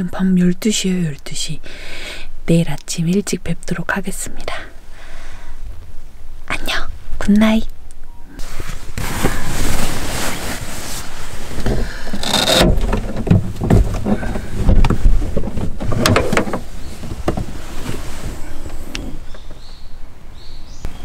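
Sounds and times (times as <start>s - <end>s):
clothing and bedding rustling: 8.4s - 12.6s, 13.4s - 19.3s
knocks and bumps in a car: 11.6s - 18.0s.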